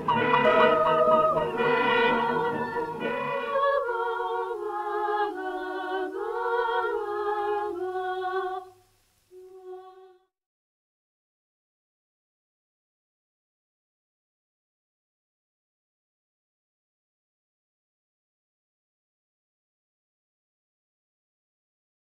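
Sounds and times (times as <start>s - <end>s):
film soundtrack music: 0.0s - 4.2s
lone voice singing: 0.0s - 8.8s.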